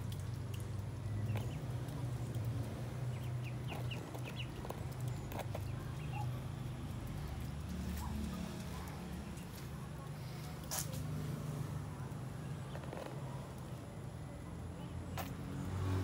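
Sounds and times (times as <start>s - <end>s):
duckling peeping: 1.2s - 1.7s, 3.1s - 6.4s.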